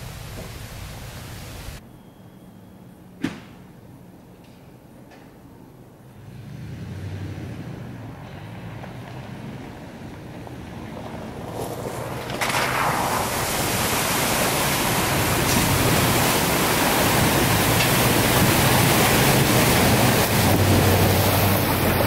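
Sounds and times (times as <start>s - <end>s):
truck engine hum: 5.4s - 22.0s
water splashing: 12.2s - 22.0s.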